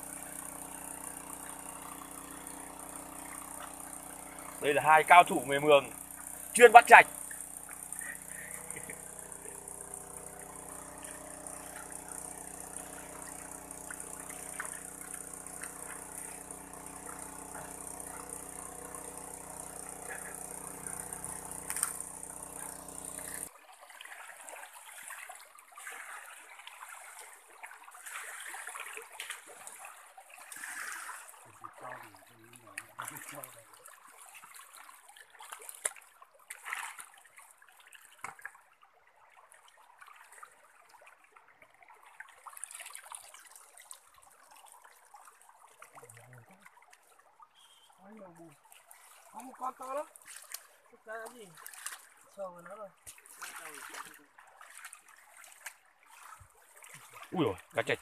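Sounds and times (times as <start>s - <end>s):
motor pump droning: 0.0s - 23.6s, 26.3s - 33.9s, 56.2s - 58.0s
shallow water trickling: 0.0s - 58.0s
splashing in mud: 50.2s - 52.3s, 53.0s - 57.5s.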